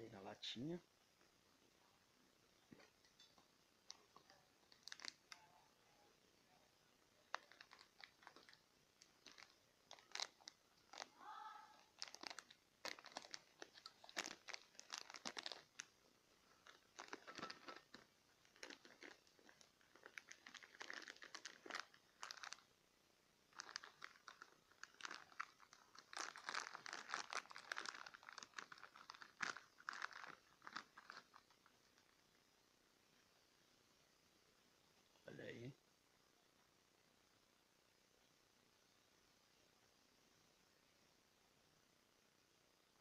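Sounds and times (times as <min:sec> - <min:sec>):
plastic wrapping crinkling: 0:02.7 - 0:05.6, 0:07.2 - 0:22.7, 0:23.5 - 0:32.1.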